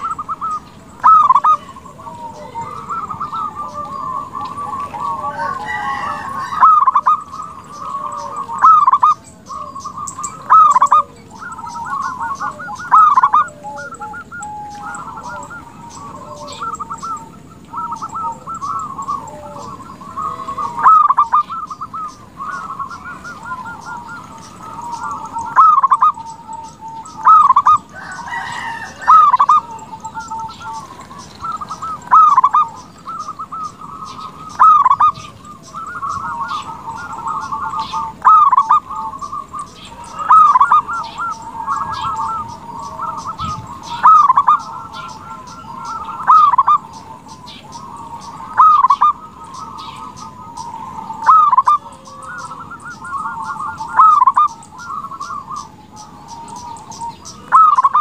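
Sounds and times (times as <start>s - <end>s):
dove cooing: 0.0s - 58.0s
soft trilling coos: 0.0s - 58.0s.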